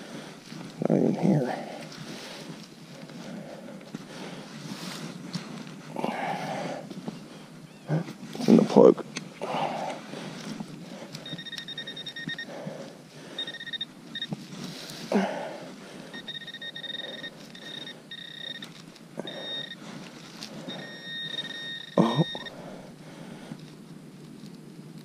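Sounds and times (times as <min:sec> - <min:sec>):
soil and glove rustling: 0:00.0 - 0:25.0
metal detector high-pitched tone: 0:11.2 - 0:12.6, 0:13.4 - 0:14.4, 0:16.1 - 0:19.9, 0:20.6 - 0:22.6.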